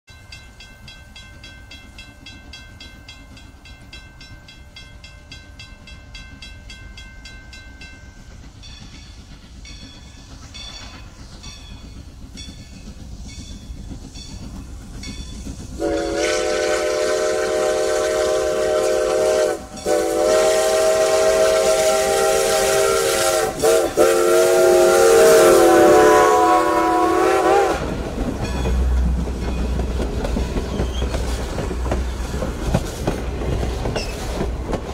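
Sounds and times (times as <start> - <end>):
locomotive bell ringing: 0.1 - 17.2, 18.0 - 20.4, 28.2 - 32.4
wheels clacking over rail joints: 6.2 - 17.0, 27.8 - 34.9
steam whistle blast: 15.8 - 27.9.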